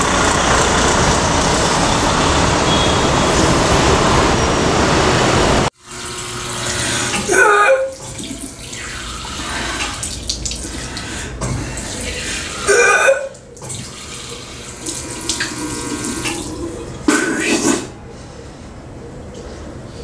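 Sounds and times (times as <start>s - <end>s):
water running: 5.8s - 17.9s.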